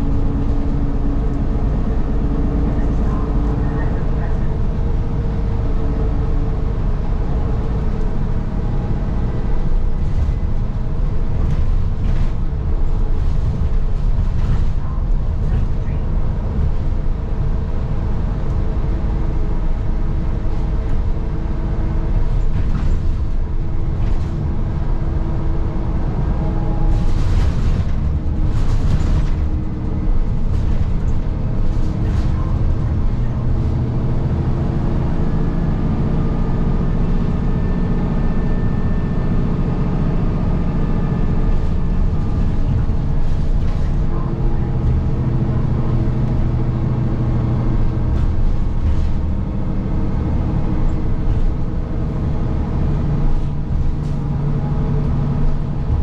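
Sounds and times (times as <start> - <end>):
bus engine and road rumble: 0.0 - 56.0.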